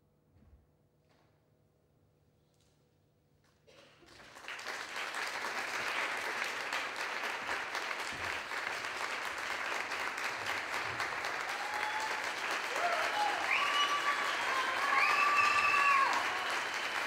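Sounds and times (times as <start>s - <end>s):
audience applause: 3.7s - 17.0s.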